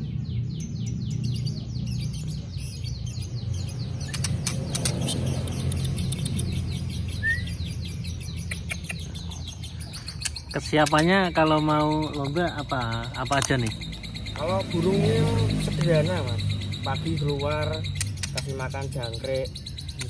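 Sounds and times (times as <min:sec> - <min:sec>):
bird chirping: 0:00.0 - 0:20.0
sharp clicks: 0:03.9 - 0:06.8, 0:08.4 - 0:09.2, 0:10.1 - 0:11.3, 0:13.2 - 0:14.0, 0:17.8 - 0:18.7.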